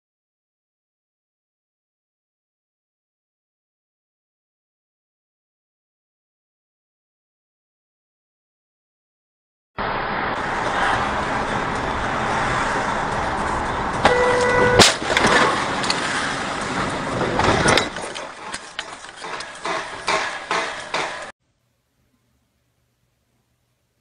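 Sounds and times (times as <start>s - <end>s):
road and engine noise: 9.8s - 21.4s
car horn: 14.0s - 15.0s
knocks and rattles: 16.6s - 21.3s.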